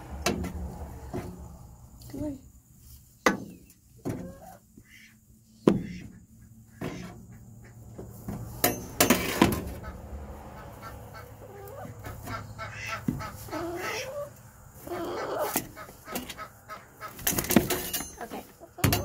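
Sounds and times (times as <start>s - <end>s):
hen squawking: 10.6s - 17.2s.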